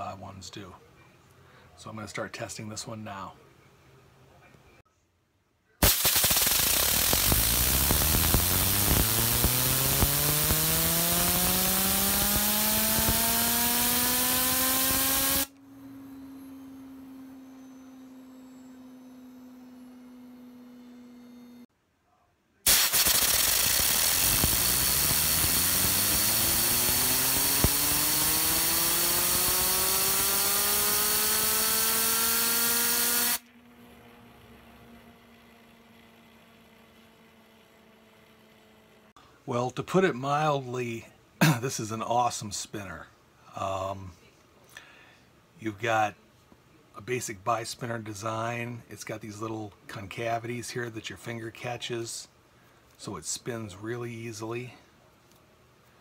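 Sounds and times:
compressed air hissing: 5.8 - 15.5, 22.7 - 33.4
spinner whirring: 5.8 - 21.7, 22.7 - 38.9.

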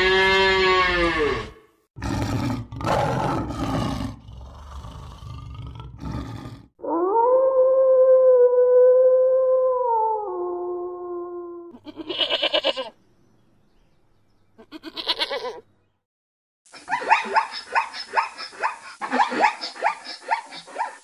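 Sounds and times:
wolf howling: 6.8 - 11.7
zebra yelping barks: 16.8 - 21.0.

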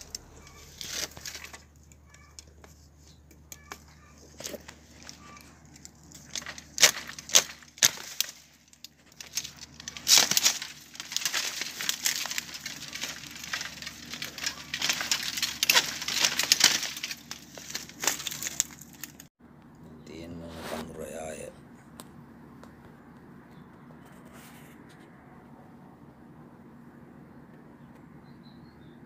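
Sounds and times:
loppers snapping bamboo stems: 0.0 - 19.3.

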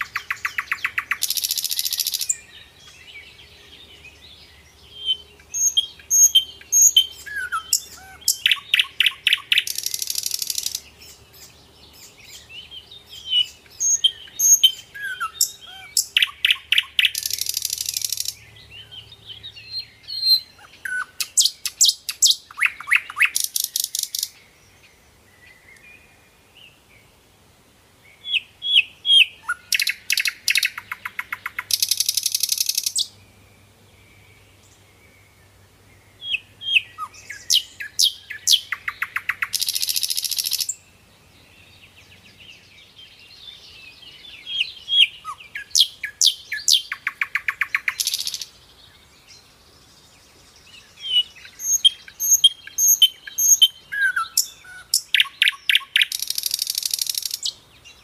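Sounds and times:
very fast bird trill: 0.0 - 2.5, 5.5 - 10.8, 29.4 - 33.1, 37.0 - 40.8, 44.9 - 48.5, 51.1 - 57.5
birds chirping: 0.0 - 58.0.

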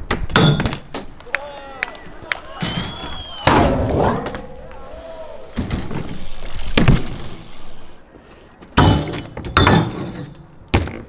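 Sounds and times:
bike clanking on metal rail: 0.3 - 1.2, 5.5 - 7.8, 8.8 - 11.0
bike tyres rolling on ramp: 0.4 - 8.1.

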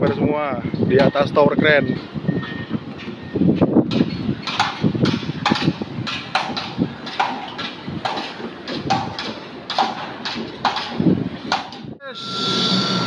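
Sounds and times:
footsteps on steel mesh grating: 2.0 - 11.9.

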